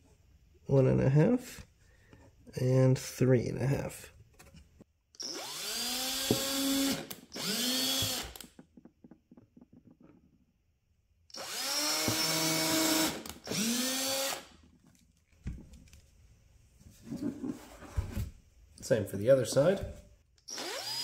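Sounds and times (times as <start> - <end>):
cordless drill whining: 5.2 - 8.5, 11.3 - 14.5, 20.4 - 21.0.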